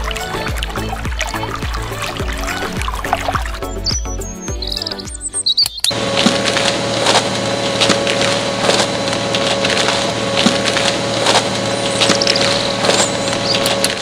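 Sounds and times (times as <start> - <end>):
drum and gearing clicking rattle: 0.0 - 3.6, 5.9 - 14.0
small electric motor whine: 5.9 - 14.0.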